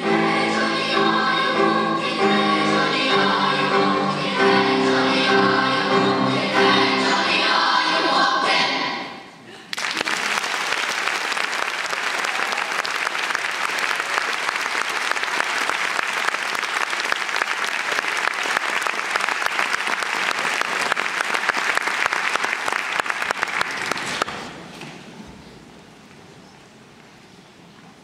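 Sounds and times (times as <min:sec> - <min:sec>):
audience applauding: 0:09.7 - 0:24.5.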